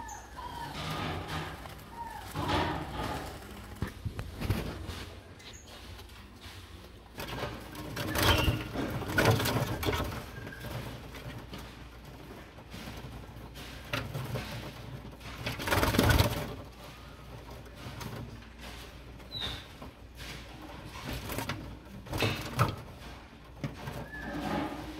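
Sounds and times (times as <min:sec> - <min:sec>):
soft calls of chicks: 0:00.0 - 0:02.7
noisy rustling: 0:00.0 - 0:24.9.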